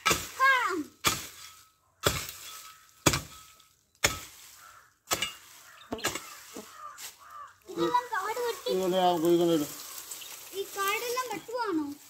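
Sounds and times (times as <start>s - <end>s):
hand tool striking ground: 0.0s - 7.4s.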